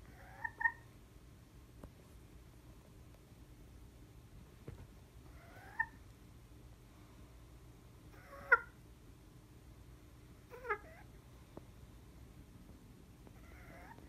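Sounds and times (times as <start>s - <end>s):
hen giving plaintive calls: 0.0s - 0.9s, 5.3s - 6.0s, 8.1s - 8.8s, 10.5s - 11.1s, 13.4s - 14.0s.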